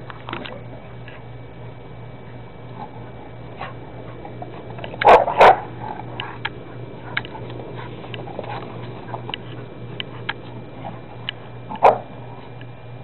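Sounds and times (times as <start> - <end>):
dog play barks: 2.7 - 12.4.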